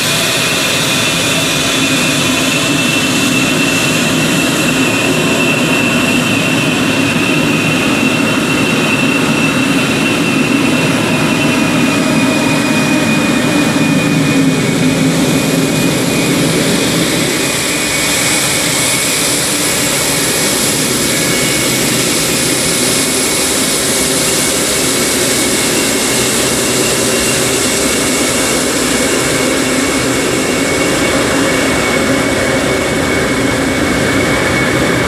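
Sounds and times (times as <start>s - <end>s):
faint high whine: 0.0s - 35.0s
jet engines rushing: 0.0s - 35.0s.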